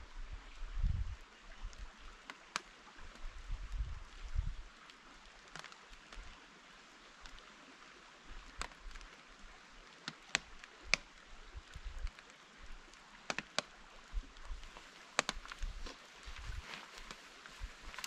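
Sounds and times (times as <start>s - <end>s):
wind rumble on microphone: 0.0s - 2.2s, 3.0s - 4.7s, 11.4s - 12.8s, 15.3s - 16.8s
light rain hissing: 0.0s - 18.0s
sharp ticks and taps: 13.2s - 13.7s, 15.1s - 15.7s.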